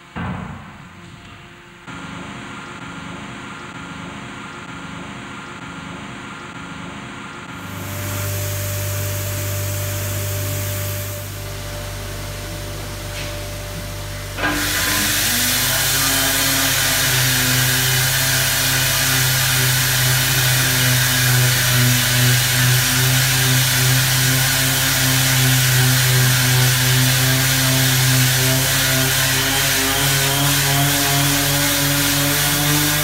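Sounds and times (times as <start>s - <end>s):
orbital sander sanding metal: 7.6s - 13.1s, 14.0s - 33.0s.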